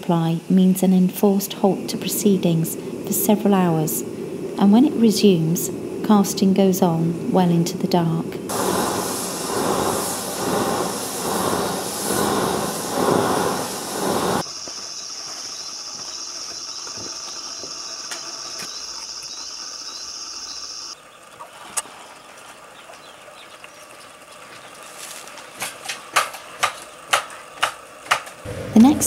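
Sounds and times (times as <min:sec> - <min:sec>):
furnace roaring in pulses: 0:01.5 - 0:29.0
high-pitched hiss: 0:08.5 - 0:21.0.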